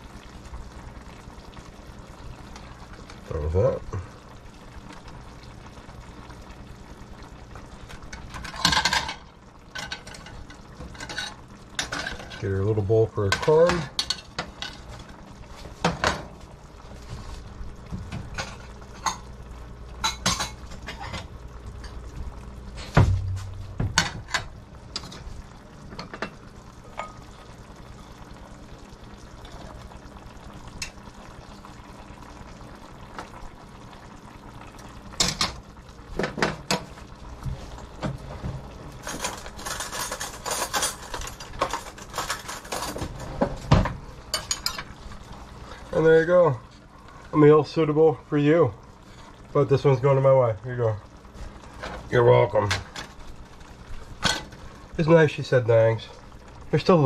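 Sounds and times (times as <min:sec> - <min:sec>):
dishes clattering: 0:08.4 - 0:12.4, 0:20.0 - 0:22.0, 0:23.0 - 0:25.2, 0:39.0 - 0:44.9.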